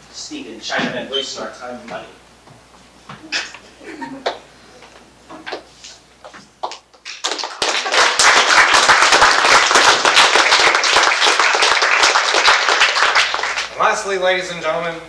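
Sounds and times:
audience applause: 7.1s - 13.8s.

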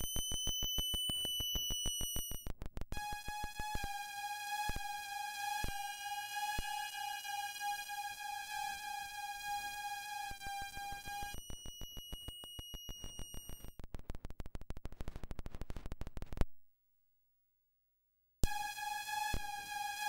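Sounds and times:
high held electronic tones: 0.0s - 2.5s, 9.9s - 13.8s
stream of glitchy clicks: 0.0s - 3.0s, 10.7s - 16.5s
buzzing electronic tone: 0.0s - 3.9s, 9.5s - 13.8s.

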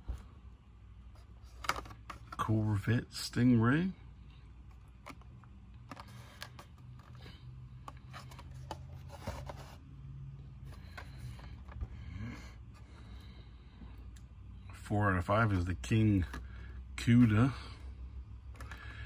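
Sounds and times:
low steady hum: 0.0s - 19.0s
cardboard and plastic packages handled: 1.0s - 2.9s, 4.5s - 13.9s, 18.4s - 19.0s.

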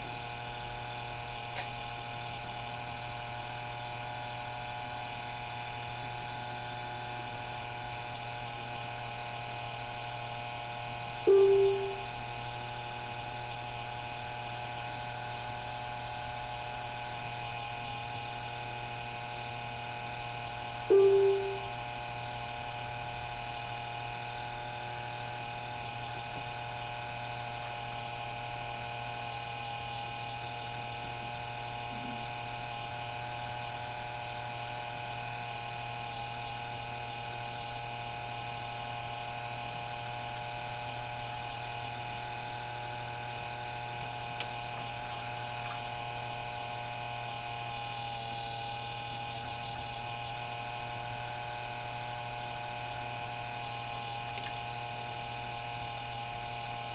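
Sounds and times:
motor and cable whirring: 0.0s - 56.9s.

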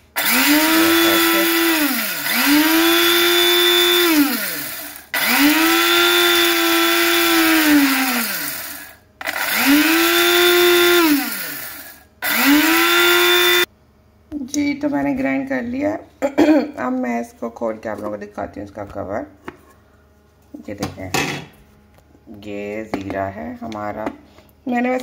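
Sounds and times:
electric spice grinder whining: 0.0s - 13.7s.

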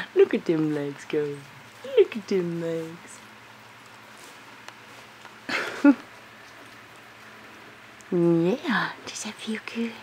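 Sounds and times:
low steady hiss: 0.0s - 10.0s
hand rubbing puppy fur: 3.9s - 5.2s.

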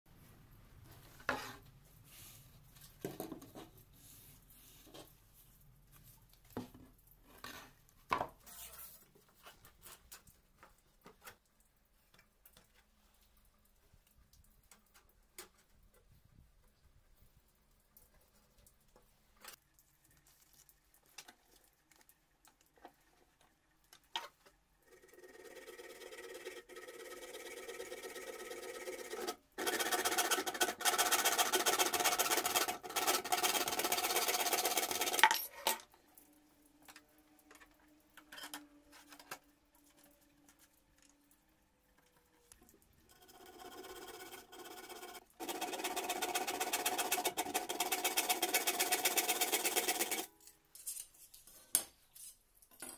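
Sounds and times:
pieces being handled: 33.7s - 52.9s.

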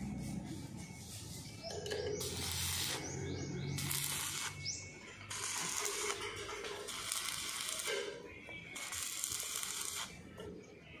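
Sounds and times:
welding arc crackling and hissing: 2.2s - 3.1s, 3.8s - 4.7s, 5.3s - 8.1s, 8.8s - 10.2s.

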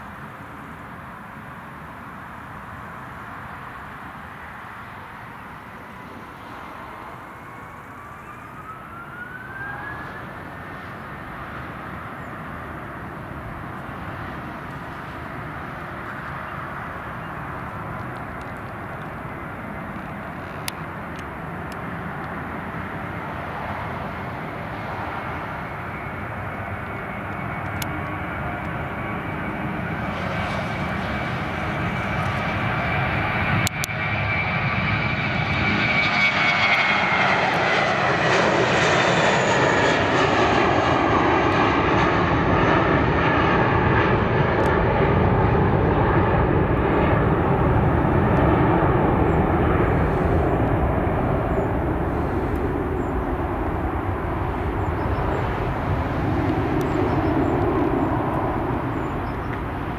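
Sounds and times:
jet engines at takeoff: 0.0s - 59.9s.

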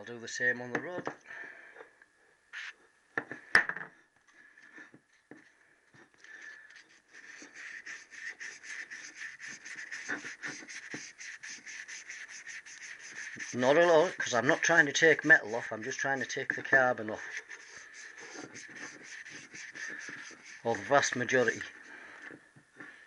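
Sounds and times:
sandpaper rubbing on metal: 6.8s - 21.8s.

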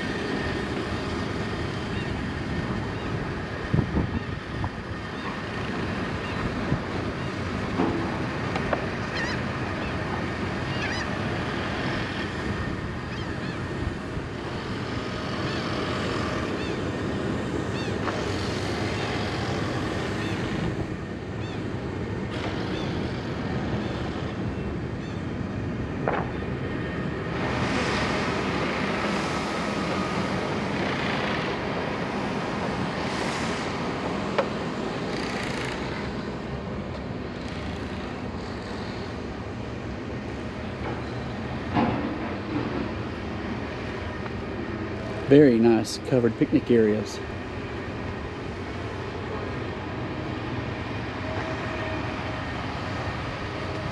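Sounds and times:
wind buffeting microphone: 0.0s - 9.0s
faint bird calls: 9.0s - 11.2s, 13.0s - 13.7s.

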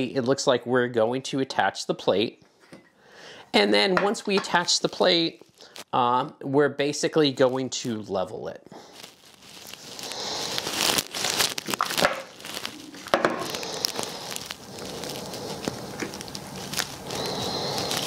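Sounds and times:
plastic crinkling and rustling: 4.2s - 6.0s, 7.2s - 18.0s.

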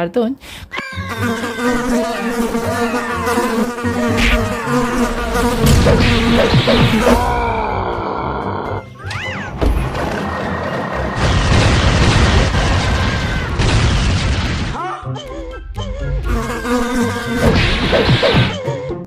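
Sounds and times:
cartoon bee swarm buzzing: 0.8s - 8.9s, 16.2s - 18.6s
wavering cry-like pitched sounds: 0.8s - 9.4s.

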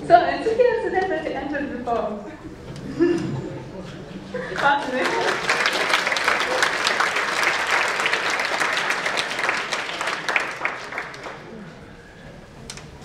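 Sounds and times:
audience applauding: 4.4s - 11.7s.

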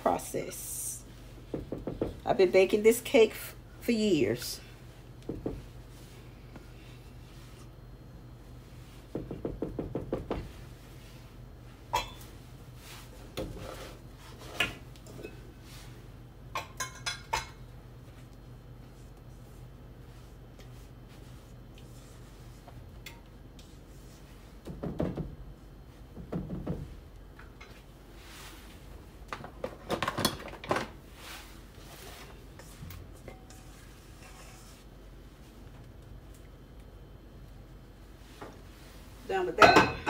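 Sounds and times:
metal bowl and pans clinking: 12.0s - 12.2s, 33.2s - 34.5s, 39.6s - 40.0s
spatula scraping bowl: 33.3s - 34.9s.

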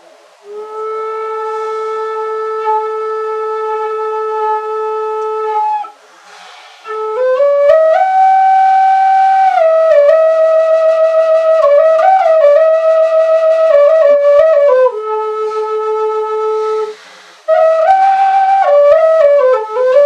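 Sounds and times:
wooden flute playing: 0.0s - 20.0s
breath: 1.4s - 2.1s, 6.0s - 6.9s, 16.8s - 17.5s.

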